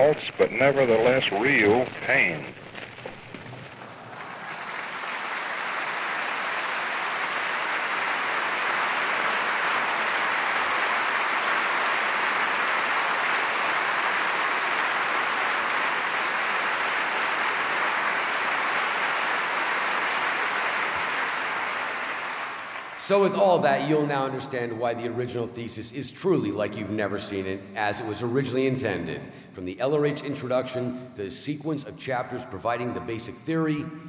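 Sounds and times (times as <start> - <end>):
large audience applauding: 3.4 - 24.0.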